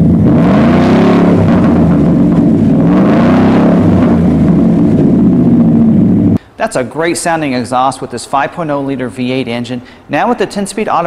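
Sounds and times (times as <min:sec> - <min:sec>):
truck engine revving: 0:00.0 - 0:06.4.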